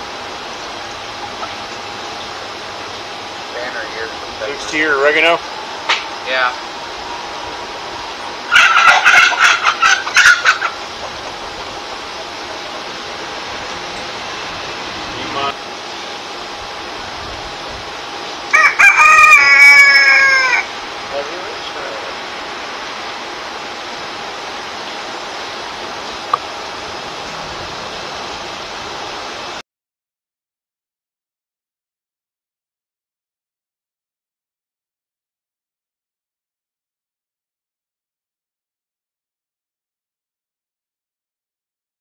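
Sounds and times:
steady even hiss: 0:00.0 - 0:18.6, 0:20.1 - 0:29.6
chickens squawking: 0:06.6 - 0:15.3, 0:18.5 - 0:20.8.

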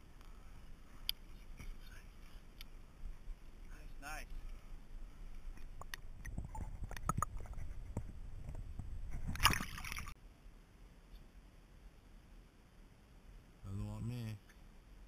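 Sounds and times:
water sloshing: 0:05.6 - 0:10.2
fish splashing and flapping: 0:09.1 - 0:10.2.

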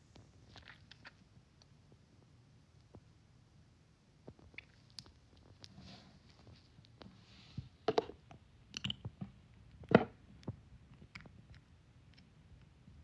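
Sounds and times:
small clicks and smacks: 0:04.2 - 0:07.1, 0:08.2 - 0:12.9.

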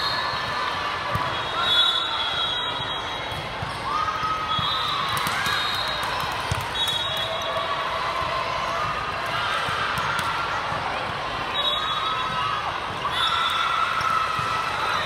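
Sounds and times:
volleyballs thumping: 0:05.0 - 0:07.1.

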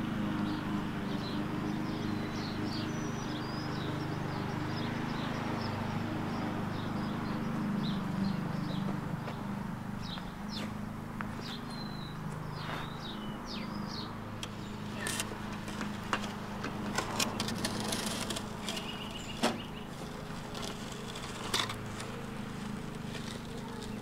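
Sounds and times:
birds chirping: 0:00.0 - 0:24.0
shovel scraping into dirt: 0:16.9 - 0:19.6.

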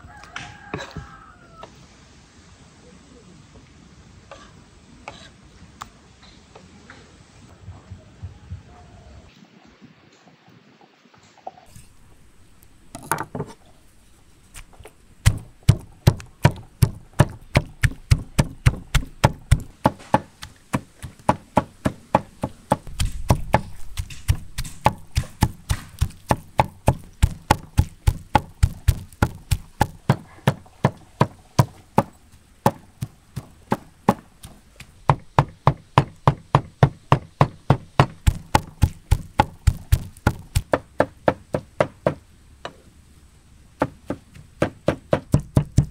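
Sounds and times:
knife chopping meat on wooden board: 0:15.2 - 0:42.2, 0:43.8 - 0:45.9.

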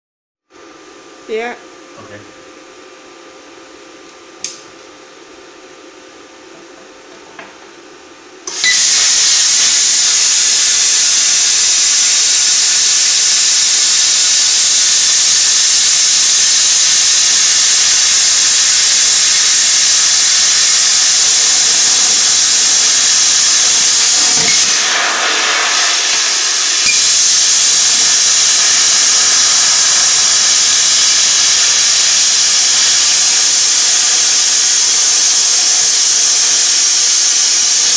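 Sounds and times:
plasma cutter hissing: 0:08.5 - 0:37.9.

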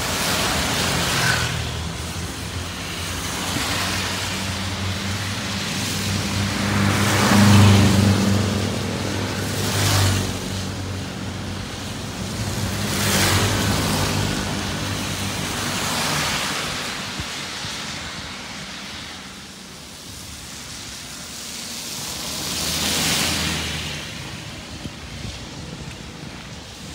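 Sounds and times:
vehicle engine hum: 0:00.0 - 0:16.9
tyres hissing on wet road: 0:00.0 - 0:26.9
motorcycle passing: 0:03.6 - 0:10.7.

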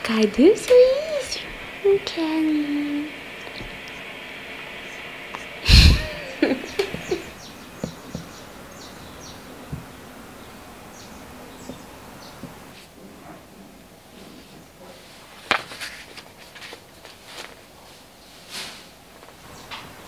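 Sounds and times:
birds chirping: 0:00.2 - 0:12.8, 0:19.4 - 0:20.0
loud rush of noise: 0:00.9 - 0:12.8.

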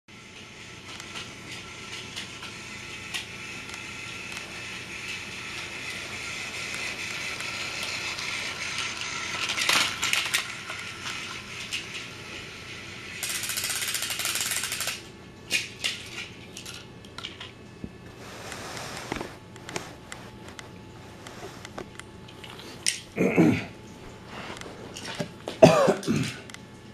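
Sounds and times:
toy trains whirring on track: 0:00.1 - 0:17.5
toy train clattering: 0:00.2 - 0:17.5.

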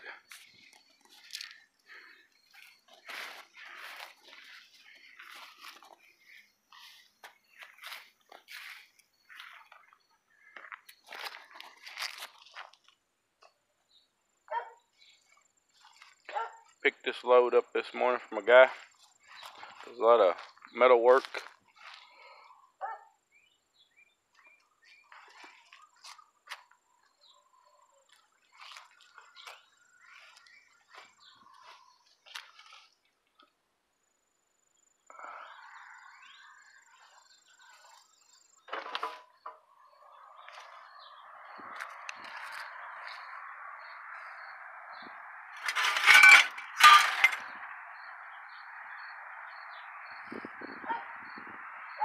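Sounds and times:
sheet steel scrap clanking: 0:45.6 - 0:47.5.

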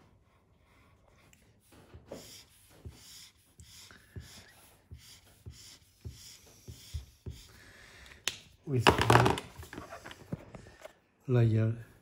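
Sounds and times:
highlighter scribbling on paper: 0:00.0 - 0:07.7.

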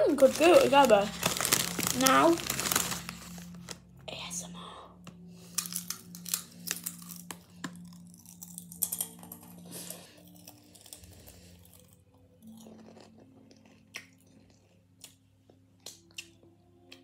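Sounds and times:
potato crisps being crunched: 0:00.0 - 0:03.8, 0:05.5 - 0:09.5.

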